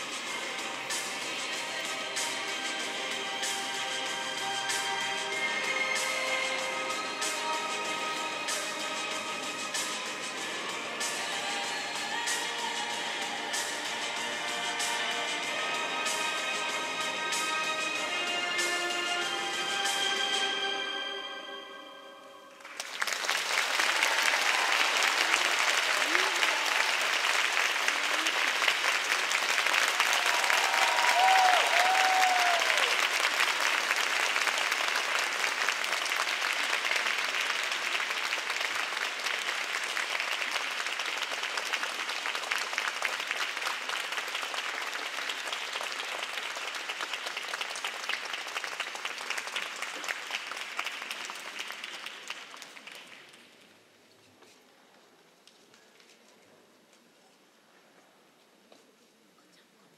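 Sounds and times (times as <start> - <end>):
audience applauding: 22.6 - 53.6.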